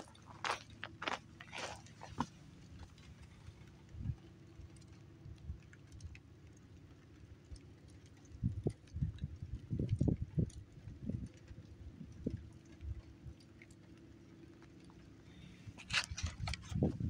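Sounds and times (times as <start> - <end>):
footsteps crunching on gravel: 0.0 - 3.0
steady low hum: 0.0 - 17.0.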